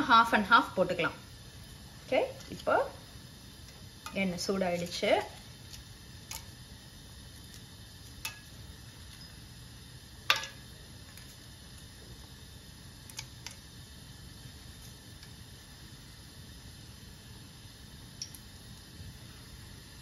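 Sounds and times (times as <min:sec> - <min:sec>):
faint steady hiss of oil: 0:00.0 - 0:20.0
spices tapping into steel pot: 0:03.6 - 0:06.6, 0:07.4 - 0:09.4, 0:10.2 - 0:11.9, 0:18.2 - 0:18.5.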